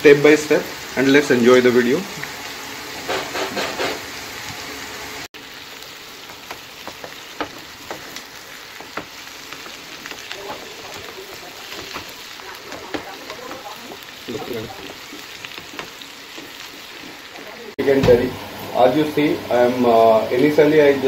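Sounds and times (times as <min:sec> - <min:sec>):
onions sizzling in oil: 0:00.0 - 0:21.0
wooden spatula scraping pan: 0:06.8 - 0:17.6.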